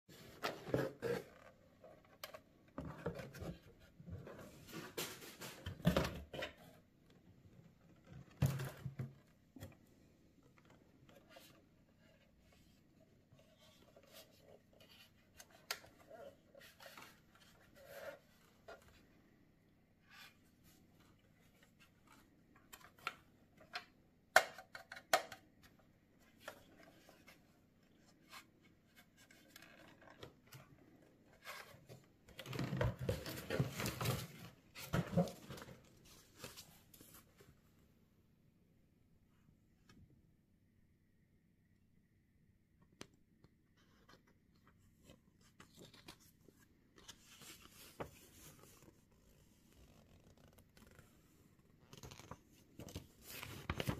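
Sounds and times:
rustling and handling noise: 0:00.1 - 0:38.0, 0:43.6 - 0:53.9.

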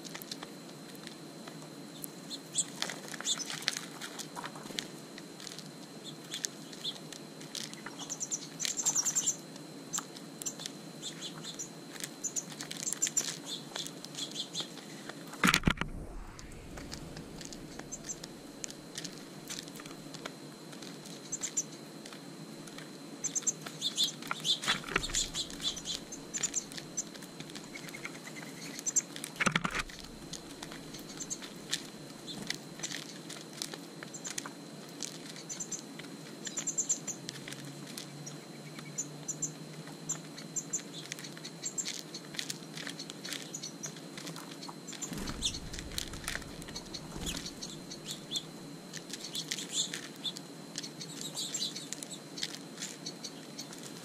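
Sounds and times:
birds pecking seed clicks: 0:00.0 - 0:54.0
small birds chirping: 0:01.9 - 0:03.8, 0:06.0 - 0:15.0, 0:15.9 - 0:19.9, 0:21.0 - 0:21.9, 0:23.2 - 0:34.5, 0:35.2 - 0:54.0
wing flutter: 0:12.4 - 0:22.8, 0:23.6 - 0:34.5, 0:44.2 - 0:50.4.

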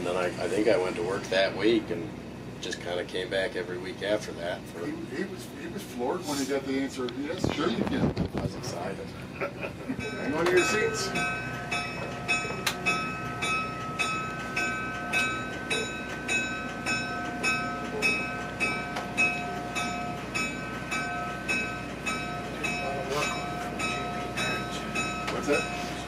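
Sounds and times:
locomotive bell ringing: 0:09.8 - 0:26.0.

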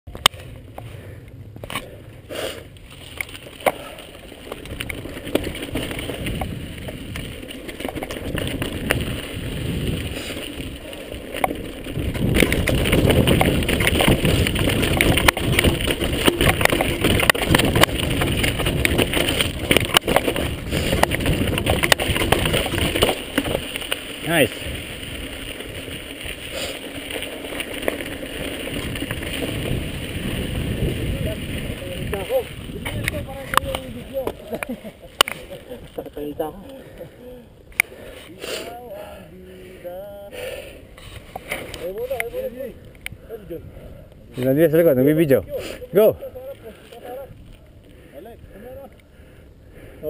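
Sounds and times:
bike tyres crunching over gravel: 0:00.1 - 0:50.0
bike knocks and rattles: 0:02.9 - 0:26.1, 0:26.9 - 0:36.3.

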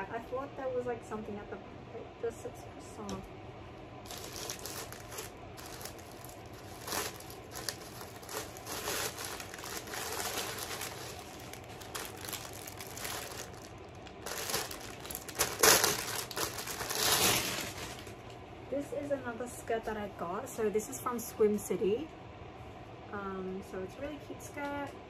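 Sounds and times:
plastic packaging crinkling: 0:04.0 - 0:18.3.

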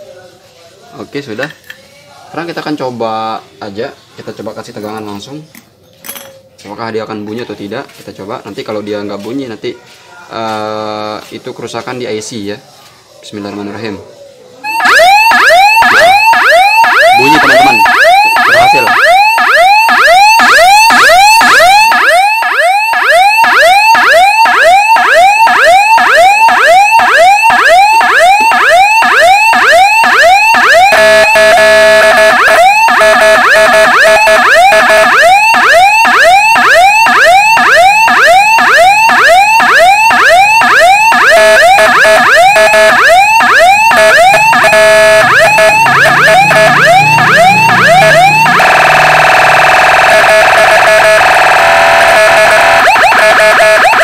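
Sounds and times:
buzzing noisy siren tone: 0:14.6 - 0:54.0
electronic siren rising sweeps: 0:14.6 - 0:54.0
steady siren tone: 0:14.6 - 0:54.0.

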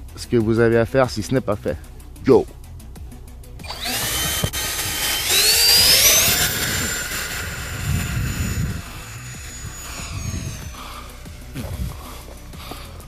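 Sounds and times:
electric ducted fan whine: 0:03.6 - 0:13.0.

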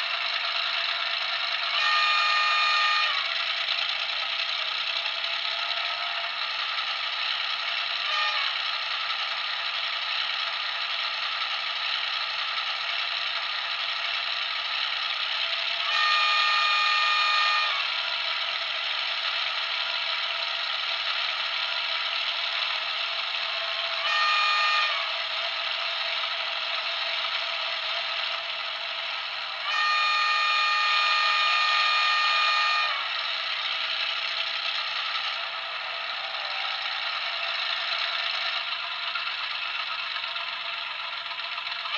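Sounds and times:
locomotive horn: 0:00.0 - 0:09.6, 0:14.5 - 0:38.5
diesel locomotive engine running: 0:00.0 - 0:41.9.

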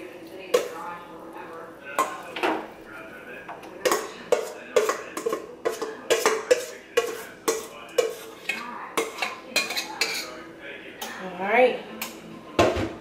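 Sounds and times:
metal bowl knocking and scraping: 0:03.9 - 0:10.3.

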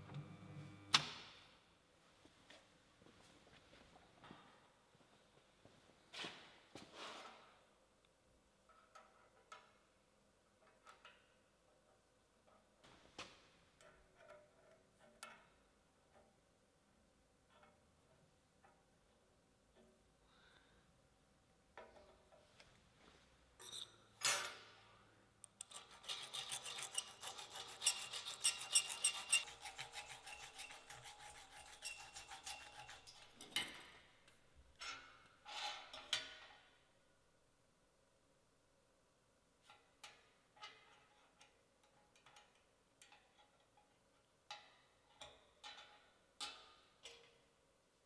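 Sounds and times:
metal rasping by hand: 0:25.6 - 0:33.6.

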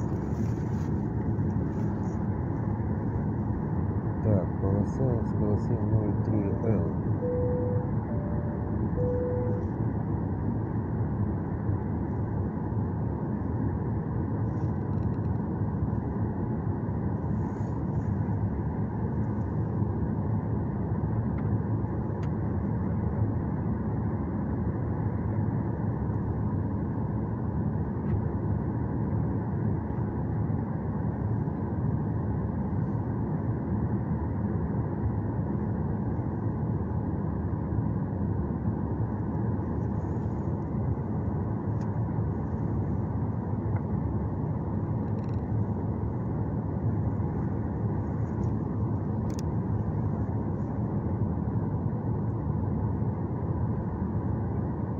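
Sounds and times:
jet engine and cabin noise: 0:00.0 - 0:54.9.

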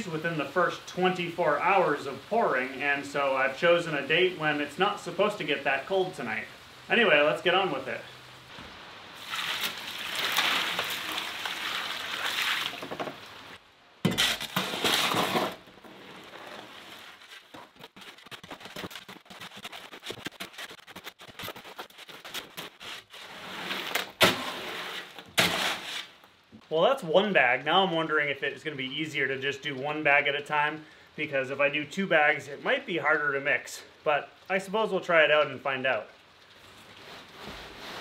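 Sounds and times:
water splashing from a bucket: 0:08.5 - 0:26.2
shovel scraping wet concrete: 0:09.2 - 0:12.8, 0:14.1 - 0:26.2.

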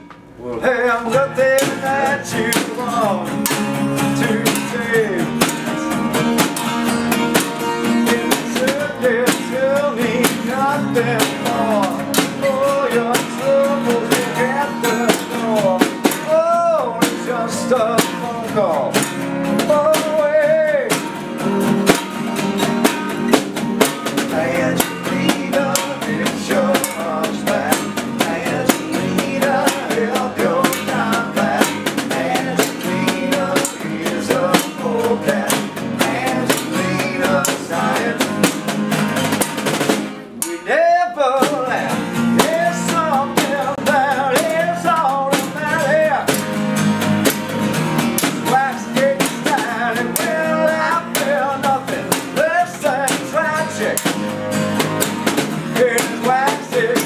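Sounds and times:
strummed acoustic guitars: 0:00.0 - 0:57.0
person singing: 0:00.4 - 0:06.4, 0:07.8 - 0:21.1, 0:24.1 - 0:38.6, 0:40.4 - 0:46.4, 0:48.2 - 0:54.2, 0:55.7 - 0:57.0
snare drum: 0:21.8 - 0:40.6.

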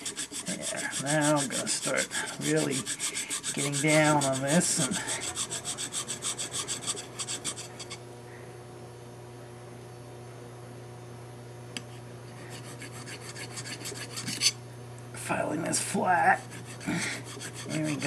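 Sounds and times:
hand file rasping on metal rail: 0:00.0 - 0:08.0, 0:12.5 - 0:14.6, 0:16.4 - 0:18.0.

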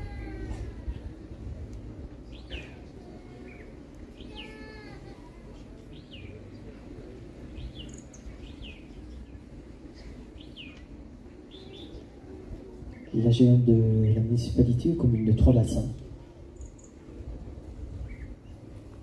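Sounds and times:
low background rumble: 0:00.0 - 0:19.0
small birds chirping: 0:00.8 - 0:15.8, 0:16.4 - 0:17.1, 0:17.9 - 0:19.0.

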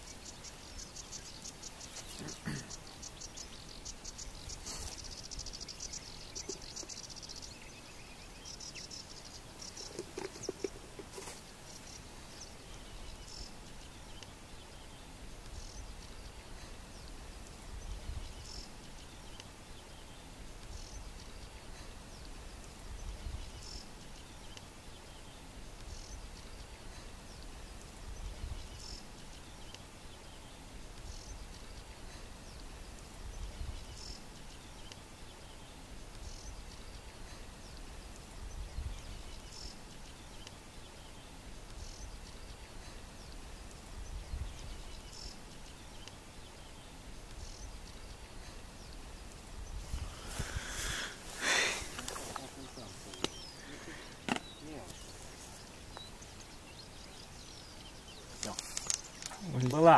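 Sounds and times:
insects chirping in grass: 0:00.0 - 0:14.6, 0:15.3 - 0:59.9
wind rumbling on microphone: 0:15.4 - 0:19.2, 0:20.0 - 0:23.8, 0:27.4 - 0:29.6, 0:30.9 - 0:34.6, 0:37.7 - 0:40.3, 0:43.3 - 0:45.9, 0:46.7 - 0:59.9.

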